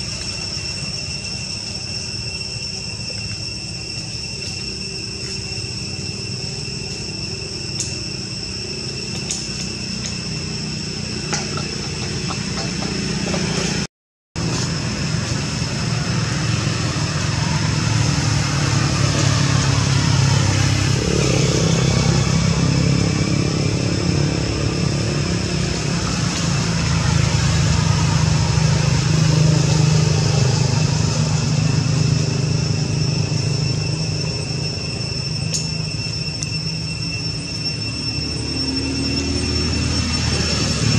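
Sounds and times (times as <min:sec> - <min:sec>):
thin high steady tones: 0:00.0 - 0:13.9, 0:14.7 - 0:40.9
low engine drone: 0:00.0 - 0:40.9.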